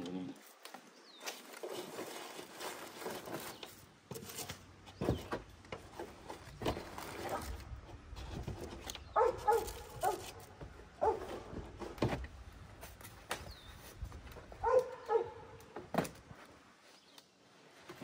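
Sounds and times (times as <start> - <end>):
dog barking: 9.2 - 10.3, 11.0 - 11.3, 14.6 - 15.6.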